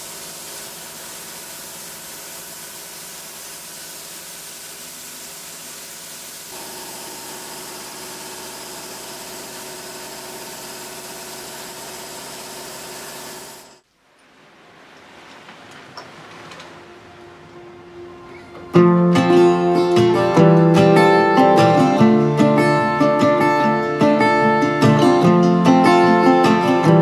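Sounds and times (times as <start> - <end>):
air compressor motor hum: 0.0 - 13.8
spray gun hissing: 0.0 - 13.8.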